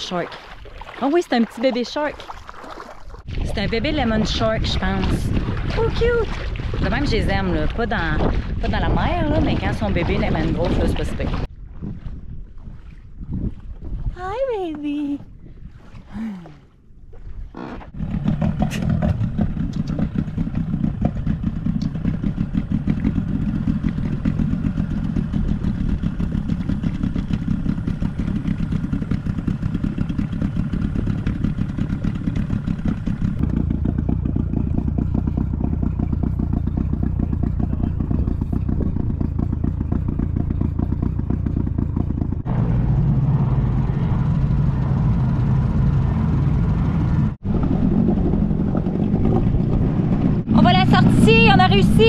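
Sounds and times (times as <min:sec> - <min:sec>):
outboard motor running: 0:00.0 - 0:52.0.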